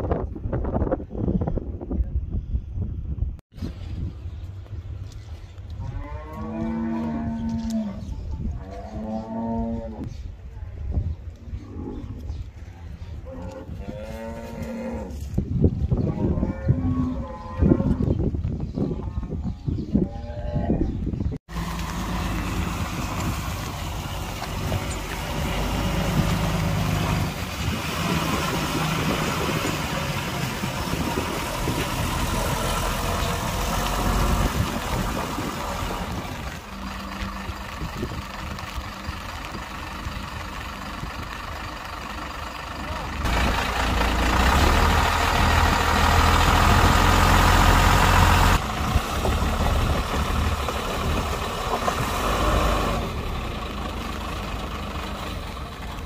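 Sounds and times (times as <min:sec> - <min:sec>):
diesel truck engine idling: 0:21.5 - 0:56.0.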